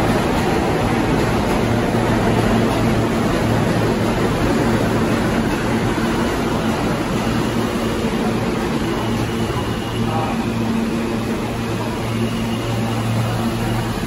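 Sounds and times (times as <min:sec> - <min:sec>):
subway train rumbling on rails: 0:00.0 - 0:14.0.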